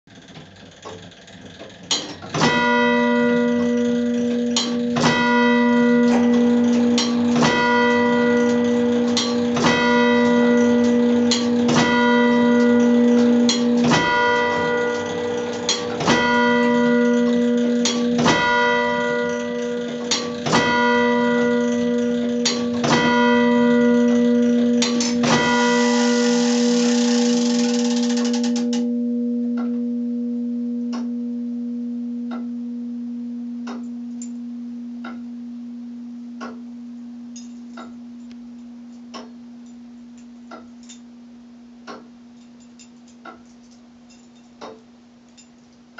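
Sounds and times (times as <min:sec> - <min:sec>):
clock mechanism clicks: 0:00.1 - 0:28.9
church bell striking: 0:02.0 - 0:41.3.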